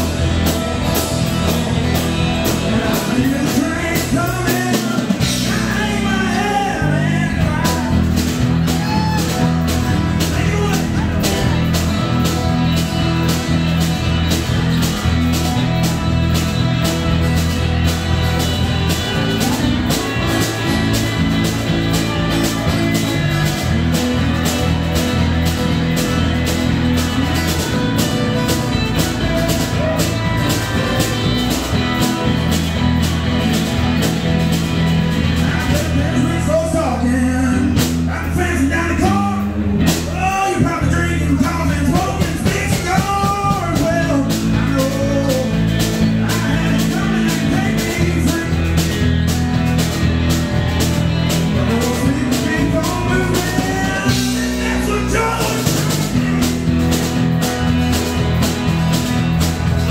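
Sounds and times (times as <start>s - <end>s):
live band music through a pa: 0.0s - 59.9s.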